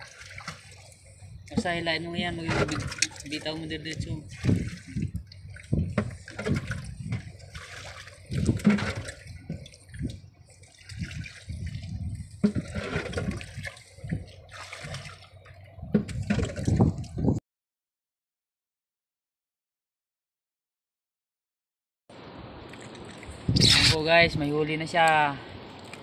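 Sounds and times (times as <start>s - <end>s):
sea water sloshing and splashing: 0.0s - 17.4s, 22.1s - 26.0s.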